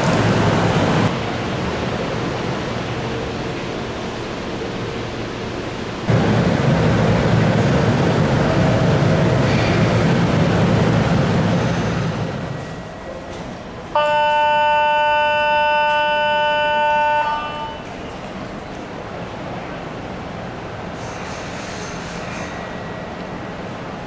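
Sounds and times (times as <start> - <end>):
loud rushing noise with hum: 0.0 - 12.6
train horn chord: 14.0 - 18.0.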